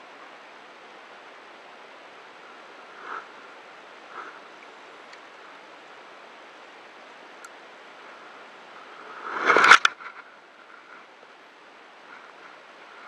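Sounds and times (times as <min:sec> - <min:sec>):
wind and sea hiss on microphone: 0:00.0 - 0:13.0
loud rush: 0:09.0 - 0:10.0.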